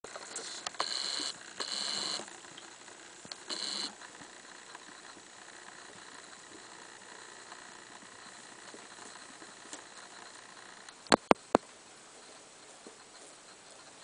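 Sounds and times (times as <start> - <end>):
faint steady hiss: 0.1 - 14.0
sharp clicks: 10.8 - 11.6.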